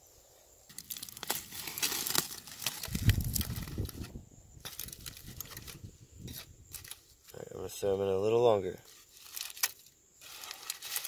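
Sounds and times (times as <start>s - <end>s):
foil crinkling and tearing: 0.7s - 5.8s, 6.7s - 7.2s, 8.8s - 11.0s.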